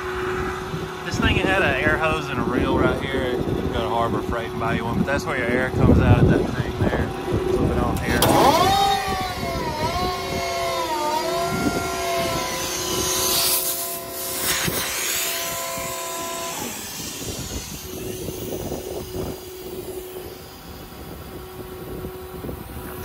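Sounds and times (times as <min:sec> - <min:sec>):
air compressor whine: 0:00.0 - 0:23.0
air hiss: 0:13.0 - 0:20.5.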